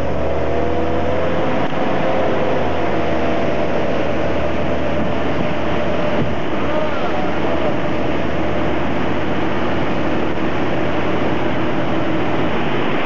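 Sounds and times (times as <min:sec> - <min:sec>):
motorboat engine running: 0:00.0 - 0:13.0
water noise: 0:00.0 - 0:13.0
wind: 0:00.0 - 0:13.0.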